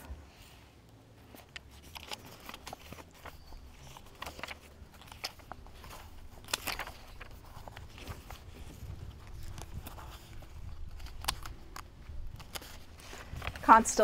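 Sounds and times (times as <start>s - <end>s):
paper pages rustling: 1.2s - 14.0s.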